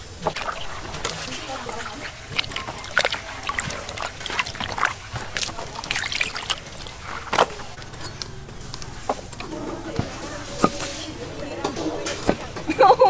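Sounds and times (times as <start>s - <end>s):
water sloshing in steel basin: 0.0s - 13.0s.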